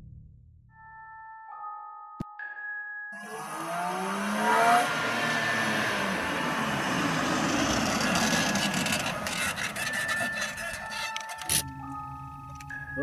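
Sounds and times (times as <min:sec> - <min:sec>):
car engine: 0:03.2 - 0:11.5
gravel crunching under tyres: 0:05.2 - 0:11.4.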